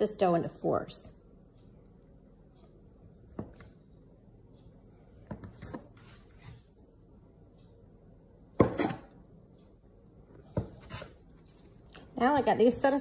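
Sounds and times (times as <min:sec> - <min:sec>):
bench scraper knocking on countertop: 0:08.6 - 0:09.0
scraper scraping countertop: 0:10.7 - 0:11.2.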